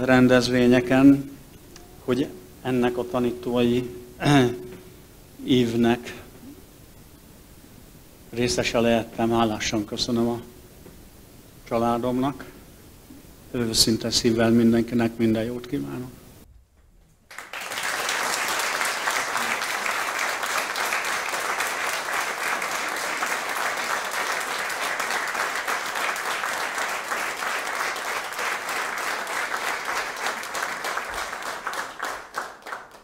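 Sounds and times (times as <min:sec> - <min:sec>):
audience applauding: 0:17.3 - 0:33.0.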